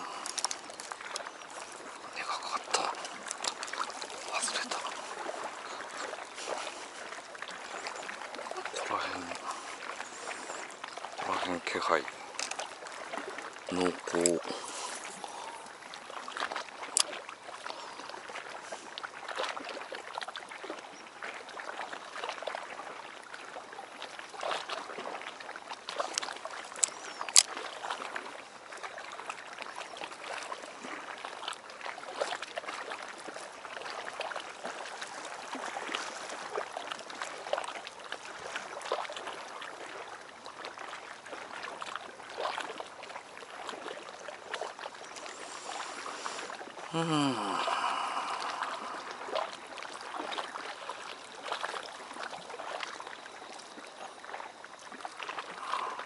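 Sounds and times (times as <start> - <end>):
waves lapping against harbour wall: 0.0 - 56.0.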